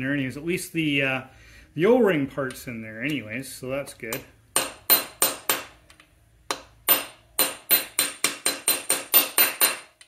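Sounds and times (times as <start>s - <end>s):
hammer striking metal punch: 4.1s - 5.8s, 6.5s - 10.0s.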